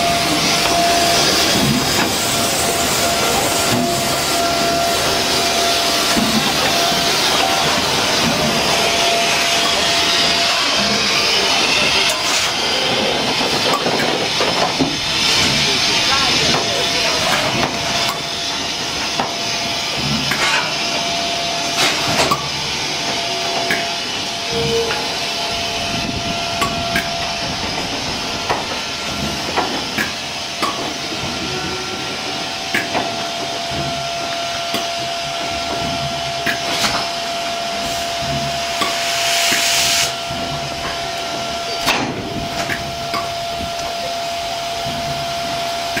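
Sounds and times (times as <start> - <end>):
steam locomotive hissing: 0.0 - 46.0
sharp clicks and knocks: 26.6 - 31.0
burst of steam: 36.8 - 40.7.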